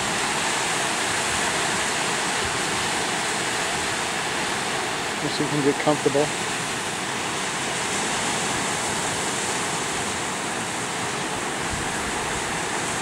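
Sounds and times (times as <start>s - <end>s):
ocean surf rushing: 0.0s - 13.0s.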